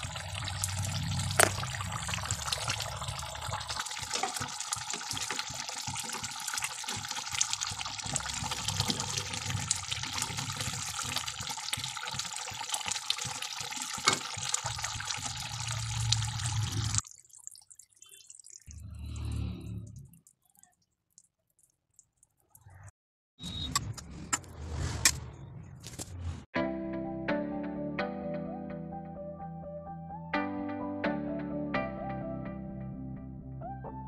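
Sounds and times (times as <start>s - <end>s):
curry bubbling with small pops: 0.0s - 19.3s, 19.9s - 22.9s.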